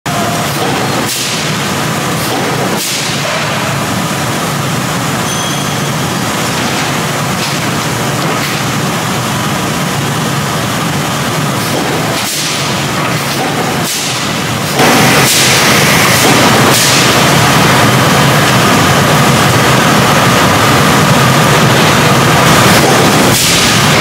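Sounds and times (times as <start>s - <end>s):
forging machinery running: 0.1s - 24.0s
sharp machine sounds: 0.1s - 24.0s.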